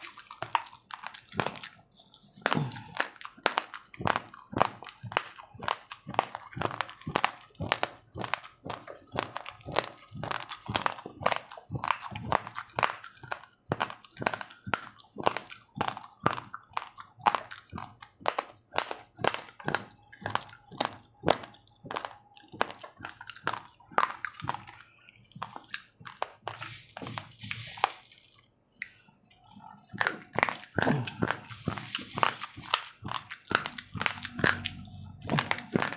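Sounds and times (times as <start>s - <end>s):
raw rice grains being chewed: 0.0s - 35.9s
hand rustling dry grains: 26.6s - 28.3s.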